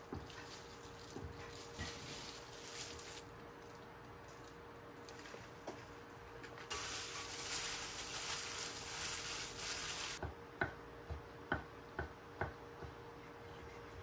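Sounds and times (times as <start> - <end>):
gloved hand tossing food in bowl: 6.7 - 10.2.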